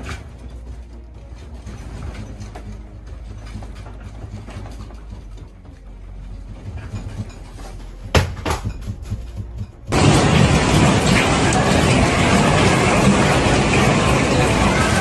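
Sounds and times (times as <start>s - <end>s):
furniture rattling: 0.0s - 12.0s
knocks and clatters: 0.0s - 15.0s.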